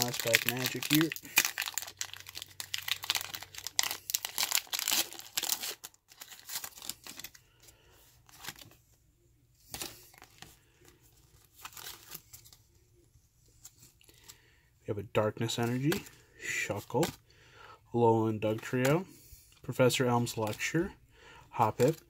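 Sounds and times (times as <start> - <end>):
foil wrapper tearing and crinkling: 0.0 - 7.4
cards rustling and sliding: 3.2 - 9.0, 9.6 - 12.8, 15.4 - 17.2.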